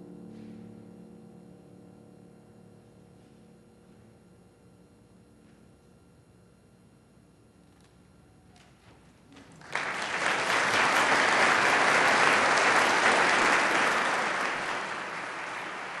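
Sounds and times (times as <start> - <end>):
audience applauding: 9.4 - 16.0.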